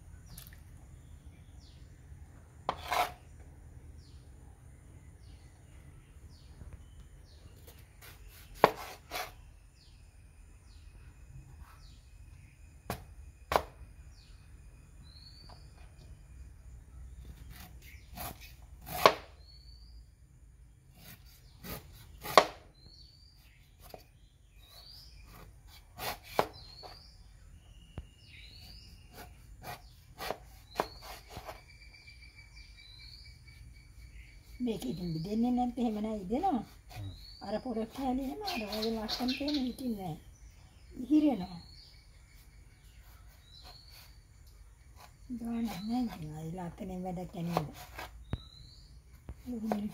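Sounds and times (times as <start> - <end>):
knife chopping on wooden board: 2.7 - 3.2, 8.0 - 9.3, 17.4 - 19.3, 21.0 - 22.7, 25.3 - 27.0, 29.1 - 31.6.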